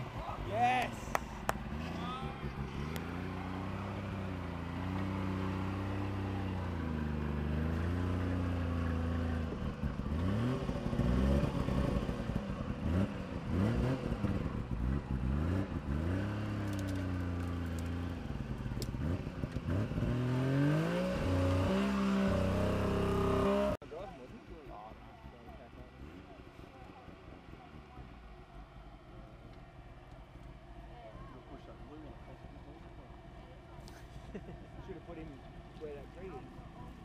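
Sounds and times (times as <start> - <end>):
car engine revving: 0.0 - 23.8.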